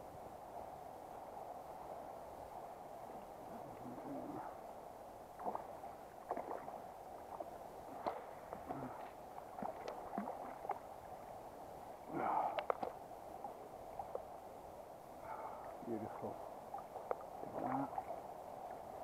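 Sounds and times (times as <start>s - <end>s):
river water flowing: 0.0s - 19.0s
water splashing and sloshing: 5.3s - 14.5s, 15.2s - 19.0s.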